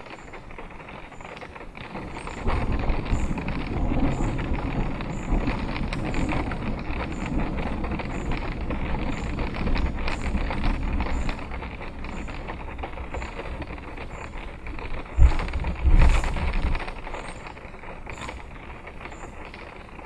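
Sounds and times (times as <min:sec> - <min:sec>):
rain pattering on car: 0:00.0 - 0:20.0
wind gusts buffeting car: 0:00.0 - 0:20.0.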